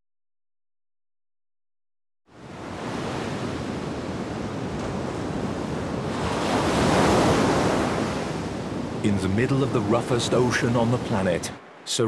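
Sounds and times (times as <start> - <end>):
ocean surf breaking on rocks: 2.4 - 12.0.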